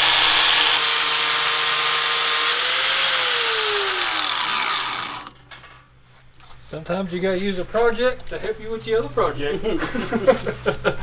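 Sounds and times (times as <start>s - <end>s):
angle grinder cutting steel: 0.0s - 5.4s.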